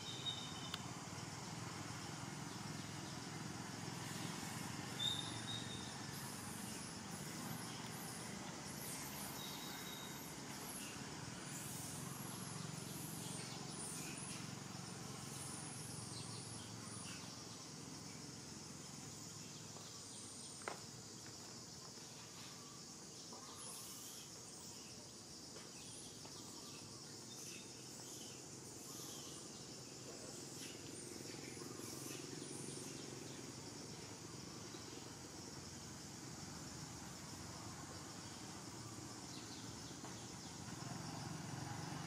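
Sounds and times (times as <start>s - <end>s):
insect chorus: 0.0s - 42.0s.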